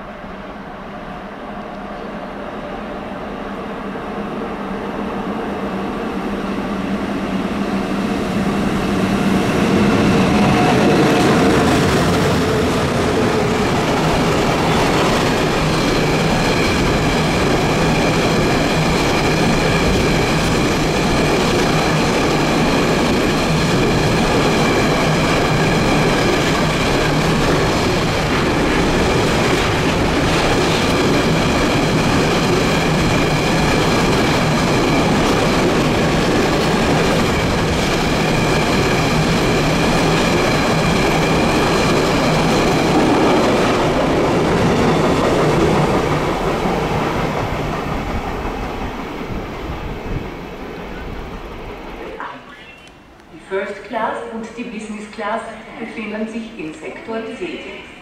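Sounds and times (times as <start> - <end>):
locomotive passing: 6.1 - 52.5.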